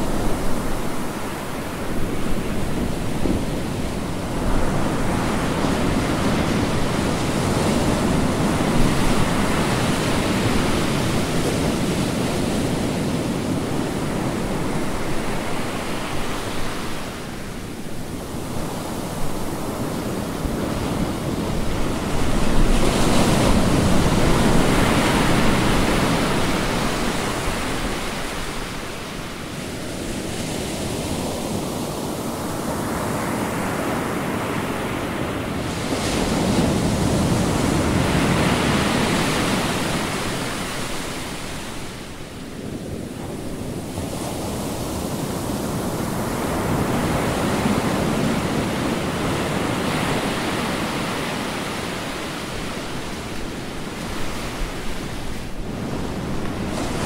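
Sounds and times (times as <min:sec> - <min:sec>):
ocean waves crashing on beach: 0:00.0 - 0:57.0.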